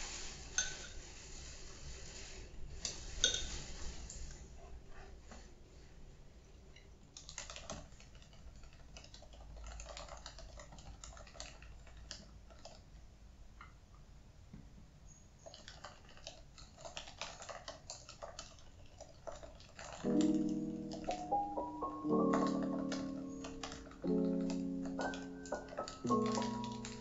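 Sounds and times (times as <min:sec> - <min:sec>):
laptop keyboard typing: 0:07.0 - 0:13.0, 0:15.4 - 0:27.0.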